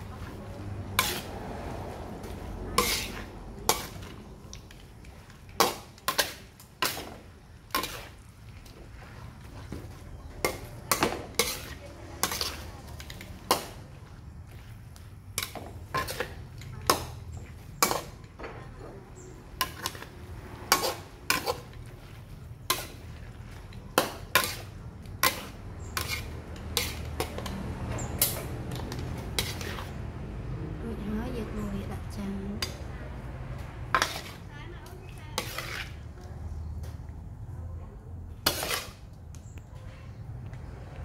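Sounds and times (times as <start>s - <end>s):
metal spatula clanking in wok: 1.0s - 1.3s, 2.8s - 4.1s, 10.4s - 13.7s, 23.9s - 29.9s.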